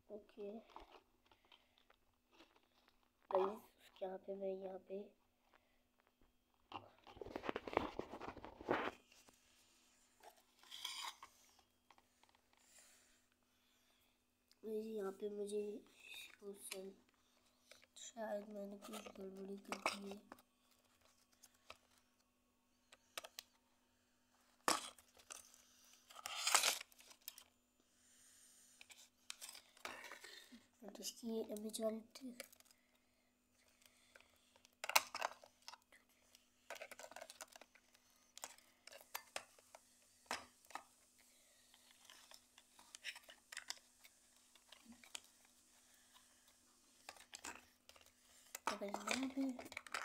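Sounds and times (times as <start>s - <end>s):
rustling scrape: 7.1s - 9.3s.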